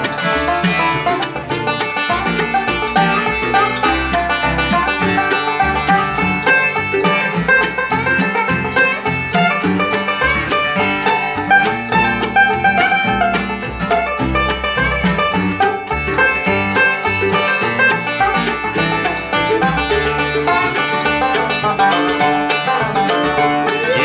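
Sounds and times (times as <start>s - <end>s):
acoustic guitar: 0.0s - 24.0s
banjo picking: 0.0s - 24.0s
mandolin picking: 0.0s - 24.0s
upright bass: 0.0s - 24.0s.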